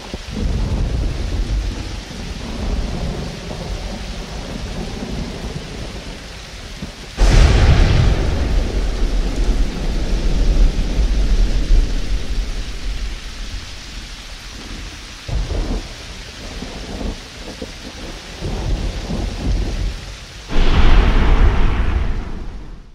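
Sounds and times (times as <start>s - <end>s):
steady rain: 0.0s - 22.9s
rumbling thunder: 0.2s - 6.0s, 7.2s - 15.9s, 16.5s - 22.9s
loud thunder clap: 7.2s - 13.7s, 20.5s - 22.9s.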